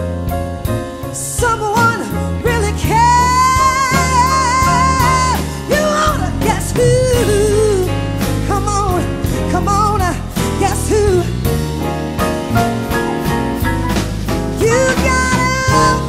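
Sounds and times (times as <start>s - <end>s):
instrumental backing with steady beat: 0.0s - 16.0s.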